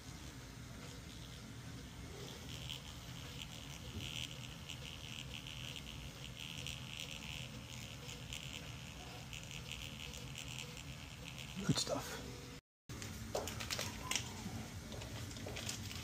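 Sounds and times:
printer motor buzzing whine: 0:00.7 - 0:12.0.

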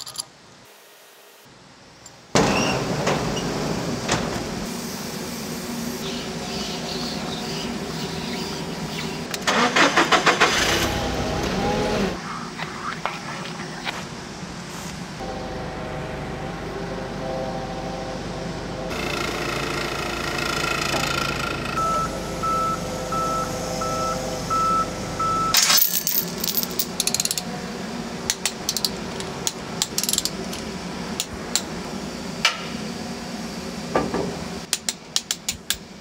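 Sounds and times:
forklift humming: 0:02.4 - 0:13.0, 0:13.7 - 0:33.9
metal chains clinking and rattling: 0:25.6 - 0:27.3.

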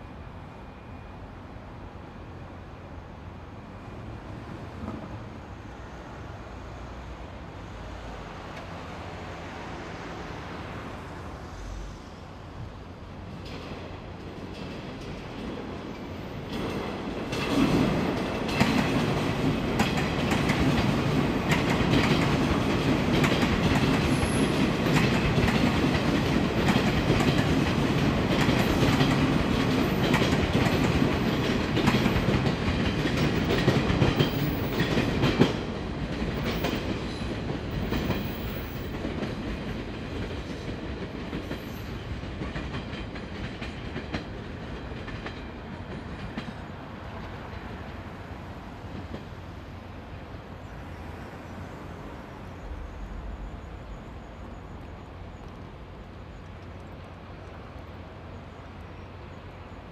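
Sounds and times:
train rumble: 0:00.0 - 0:59.9
train wheels clacking: 0:13.4 - 0:48.0.

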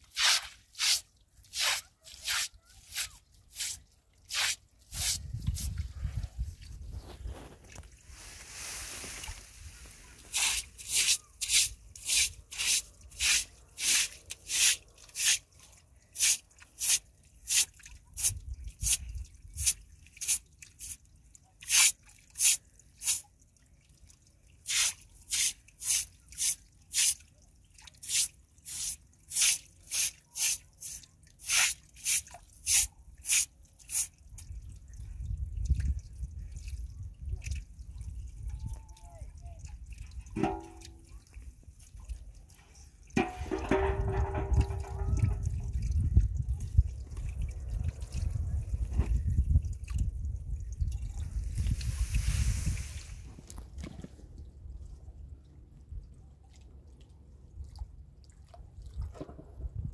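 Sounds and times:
broom sweeping stone floor: 0:00.0 - 0:05.8, 0:07.1 - 0:15.4, 0:24.7 - 0:27.2, 0:28.1 - 0:34.1, 0:51.8 - 0:53.5.

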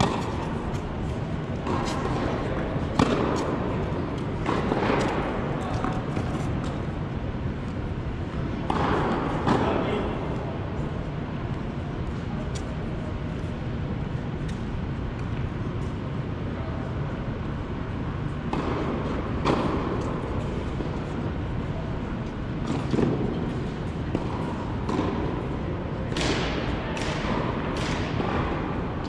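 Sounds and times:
tennis ball bouncing on hard court: 0:00.0 - 0:07.0, 0:08.3 - 0:09.7, 0:18.5 - 0:21.1, 0:22.2 - 0:29.0
steady low hum: 0:00.0 - 0:29.0.

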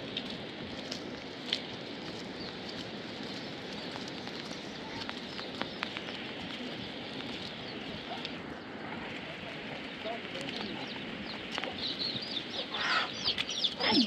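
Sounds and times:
sharp ticks of raindrops: 0:00.0 - 0:14.0
steady rain falling: 0:00.0 - 0:14.0
faint bird calls: 0:03.8 - 0:14.0.

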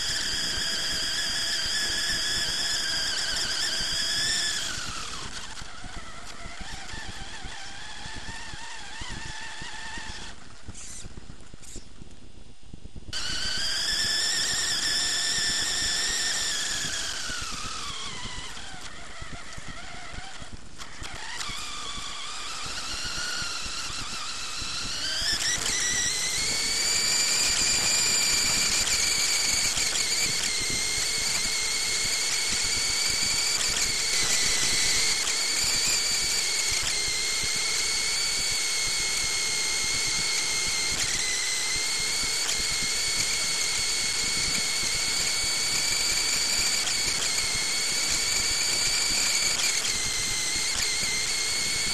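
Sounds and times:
toy car motor whining: 0:00.0 - 0:12.0, 0:13.1 - 0:51.9.

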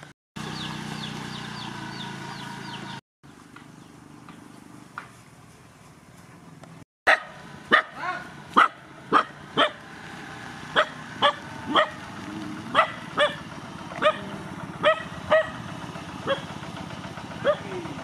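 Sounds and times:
scooter engine humming: 0:00.0 - 0:18.0
dog barking: 0:07.1 - 0:09.8, 0:10.7 - 0:12.1, 0:12.7 - 0:15.6, 0:16.2 - 0:16.5, 0:17.4 - 0:17.8.

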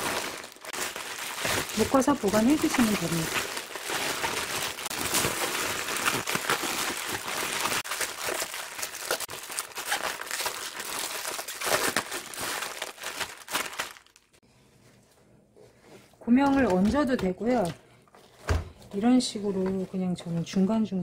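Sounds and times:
plastic bag crinkling: 0:00.0 - 0:14.4.

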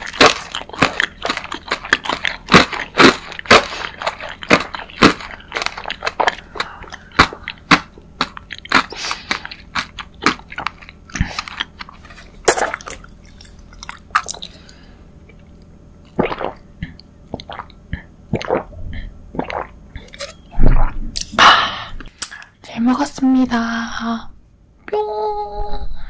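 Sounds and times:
crunchy chewing: 0:00.0 - 0:15.7.

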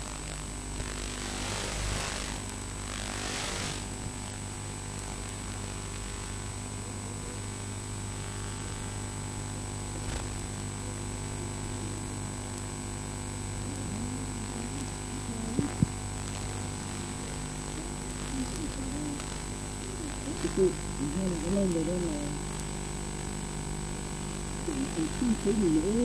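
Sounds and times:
electrical hum and hiss: 0:00.0 - 0:26.0.

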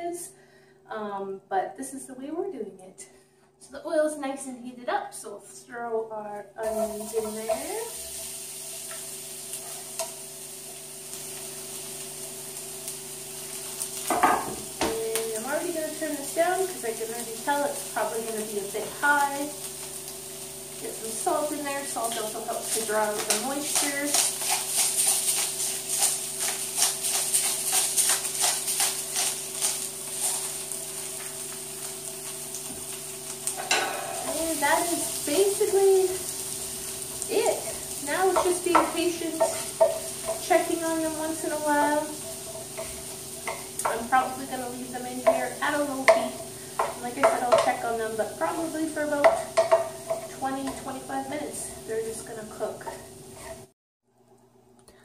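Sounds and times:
onions sizzling in oil: 0:06.6 - 0:53.7
salt grinder crunching: 0:23.1 - 0:33.6.

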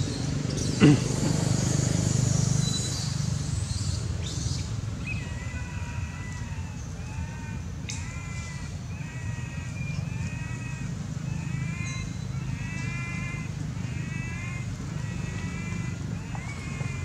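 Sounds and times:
baby monkey crying: 0:05.3 - 0:17.0.

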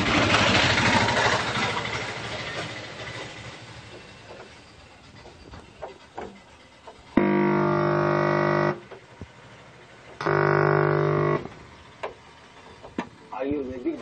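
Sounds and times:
television speaker buzzing: 0:07.2 - 0:08.9, 0:10.2 - 0:11.6.

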